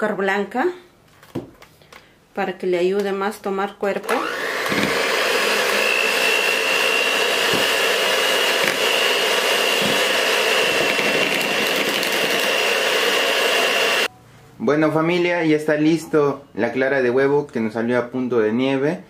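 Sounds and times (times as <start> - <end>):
electric hand mixer running: 4.0 - 14.1.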